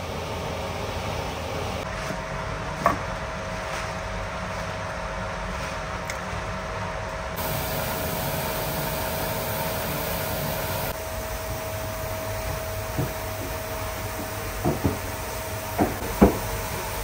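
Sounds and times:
ventilation fan whirring: 0:00.0 - 0:17.0.

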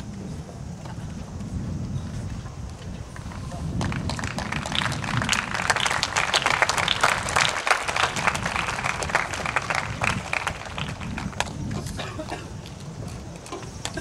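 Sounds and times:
crowd applauding: 0:03.2 - 0:12.0.

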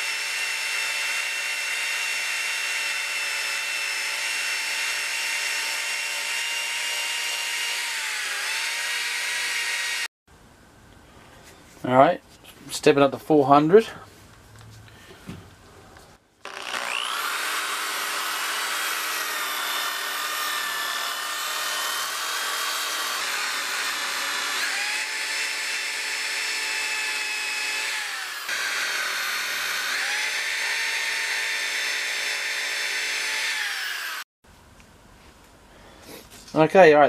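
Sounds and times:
orbital sander whining on metal: 0:00.0 - 0:10.1, 0:16.5 - 0:34.3.

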